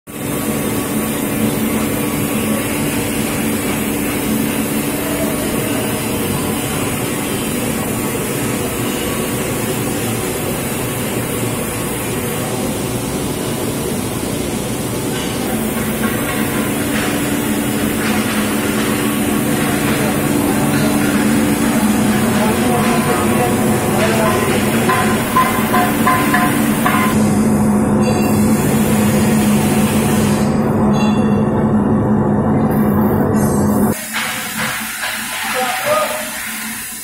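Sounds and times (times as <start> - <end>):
industrial machinery droning hum: 0.1 - 37.0.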